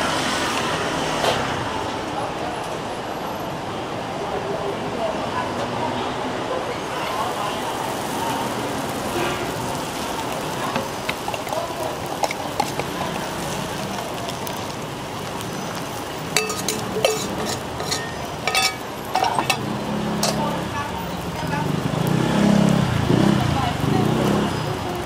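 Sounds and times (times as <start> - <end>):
flatbread sizzling on griddle: 6.8 - 25.0
sharp metallic clinks: 16.4 - 20.5.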